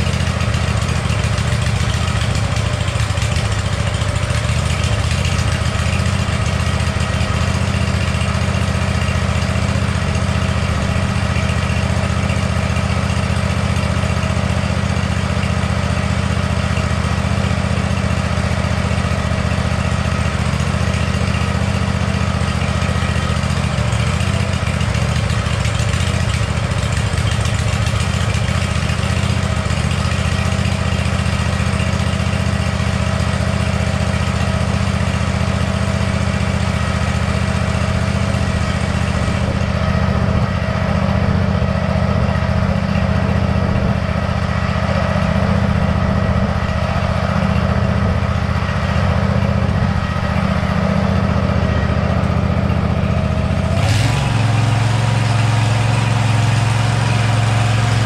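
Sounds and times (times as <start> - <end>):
lawn mower engine running: 0.0 - 58.0.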